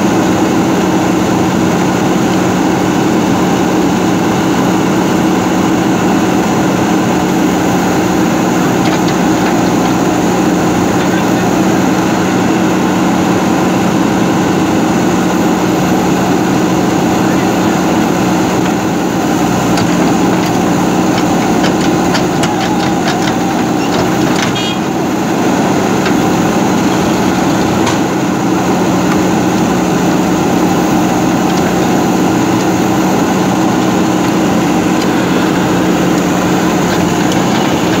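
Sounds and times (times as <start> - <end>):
diesel engine running: 0.0 - 38.0
backhoe digging soil: 0.1 - 38.0.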